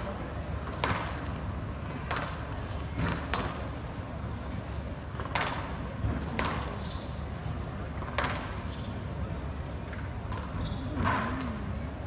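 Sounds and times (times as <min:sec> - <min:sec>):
squash ball cracks: 0:00.7 - 0:01.4, 0:05.2 - 0:05.8.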